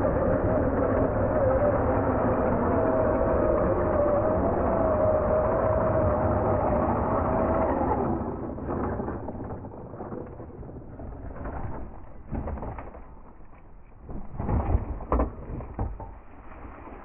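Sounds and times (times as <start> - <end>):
dirt scraping and crumbling: 8.6 - 17.0.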